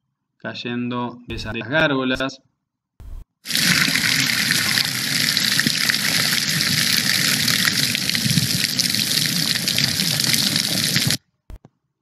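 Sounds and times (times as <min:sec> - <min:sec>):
water running down rain chain: 0:03.5 - 0:11.2.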